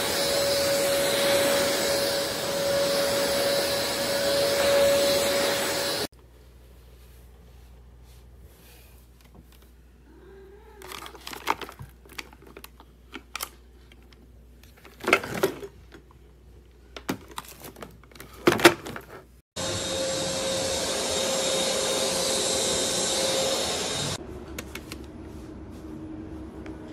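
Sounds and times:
vacuum motor whining: 0.0s - 6.1s, 19.6s - 24.2s.

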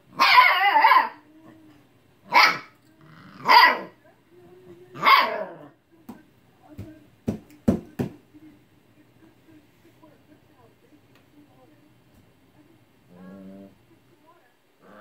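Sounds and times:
puppy barking in high yelps: 0.1s - 1.2s, 2.3s - 2.7s, 3.4s - 4.0s, 5.0s - 5.6s.

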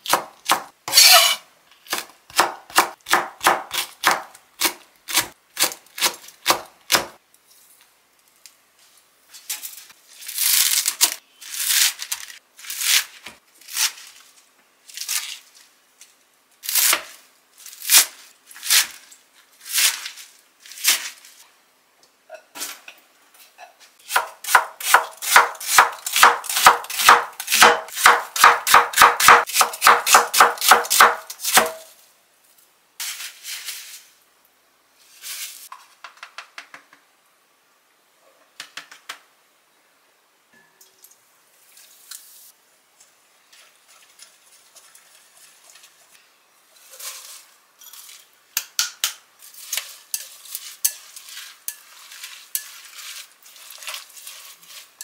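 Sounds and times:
knife chopping on cutting board: 1.9s - 7.1s, 24.1s - 31.8s.

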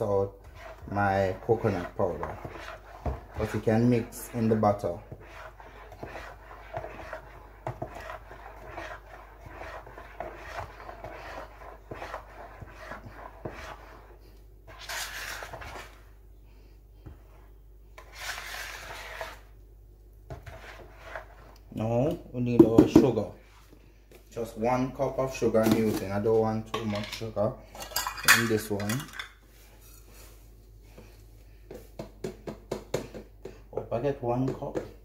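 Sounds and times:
fork scraping batter in bowl: 0.0s - 16.1s, 18.0s - 19.6s, 20.3s - 21.8s.

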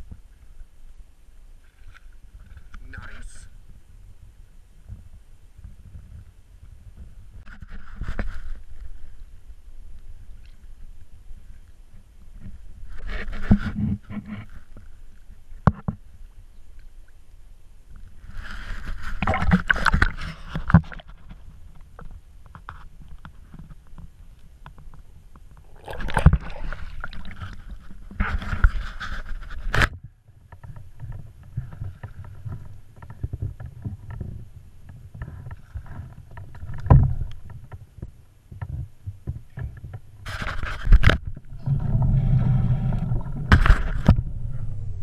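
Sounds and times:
water sloshing and splashing: 18.7s - 22.2s, 25.5s - 28.9s, 41.1s - 44.4s.

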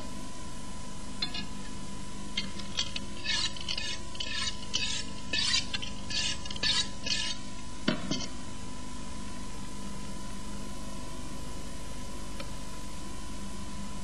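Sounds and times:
knife cutting and scraping fat: 2.4s - 7.5s.

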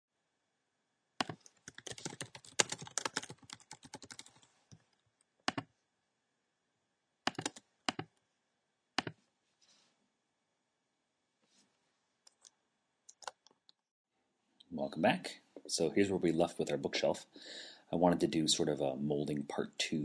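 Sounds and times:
typing on computer keyboard: 1.2s - 4.4s, 7.3s - 8.1s.

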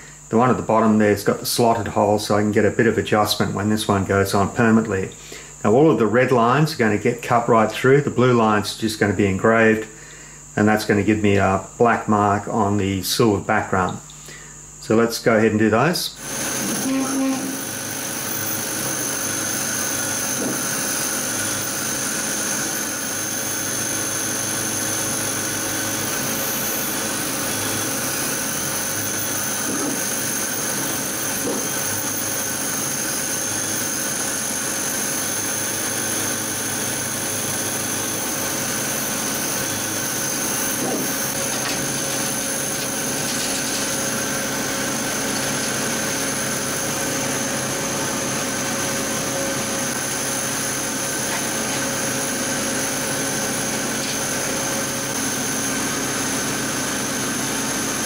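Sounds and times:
high steady whines: 0.0s - 58.0s.

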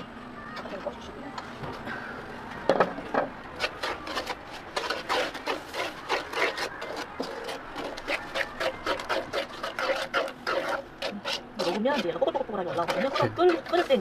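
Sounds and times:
wooden spatula scraping wok: 3.1s - 14.0s.

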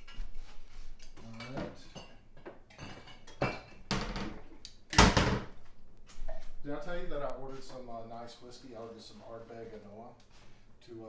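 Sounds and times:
dishes and utensils clinking: 0.0s - 4.5s.

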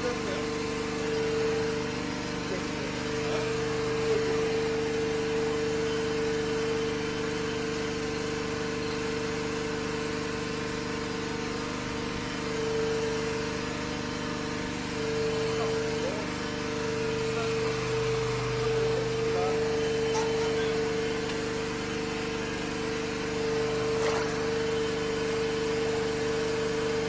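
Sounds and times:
drain-cleaning machine humming: 0.0s - 27.0s.

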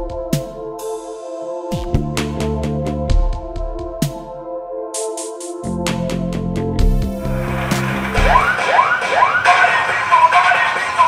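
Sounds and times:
synth chords: 0.0s - 11.0s
kick drum: 1.7s - 2.2s, 3.1s - 4.2s
bass: 1.7s - 4.1s, 5.6s - 8.5s
electronic beat: 1.7s - 4.3s, 6.8s - 11.0s.

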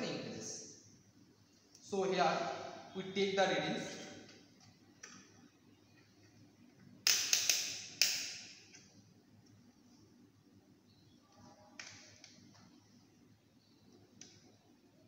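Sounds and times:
multimeter probes clicking: 7.0s - 9.6s.

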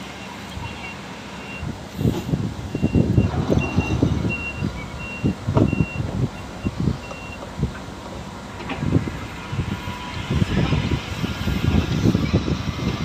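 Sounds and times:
road roller engine rumble: 0.0s - 13.0s
reversing alarm beeping: 0.1s - 1.7s, 2.7s - 7.4s.

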